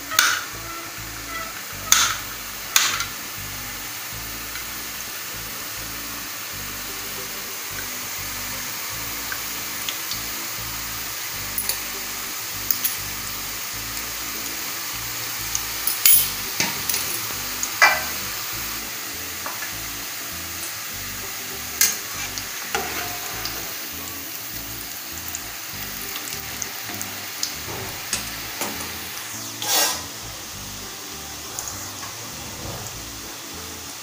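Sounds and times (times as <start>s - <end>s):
dough deep-frying in oil: 0.0s - 34.0s
spatula scraping pan: 21.8s - 23.8s, 28.8s - 30.2s.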